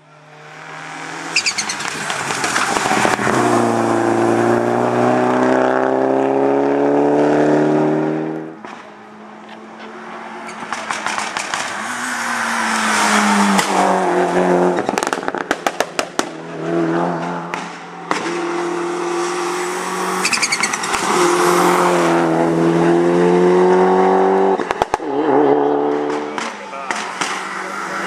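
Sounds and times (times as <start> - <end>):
rally car engine at full throttle: 0.0 - 28.0
brief high squeal: 1.4 - 1.8, 20.2 - 20.8.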